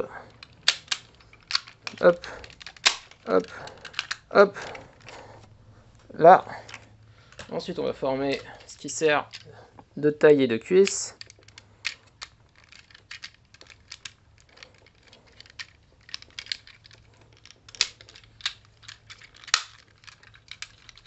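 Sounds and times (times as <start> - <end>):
plastic toy parts clicking: 0.3 - 5.2, 6.7 - 7.6, 8.3 - 9.5, 10.8 - 21.0.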